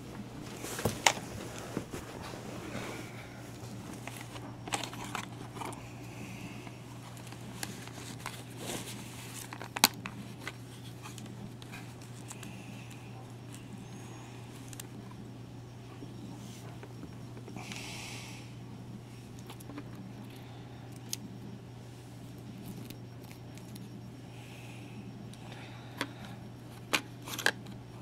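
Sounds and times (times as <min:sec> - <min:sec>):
steady low hum: 0:00.0 - 0:28.0
plastic clicks and rustles: 0:03.9 - 0:05.8, 0:07.0 - 0:12.5.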